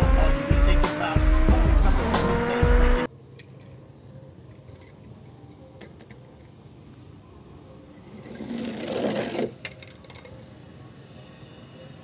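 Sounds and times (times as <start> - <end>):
toy car wheels whirring on slide: 8.1 - 10.5.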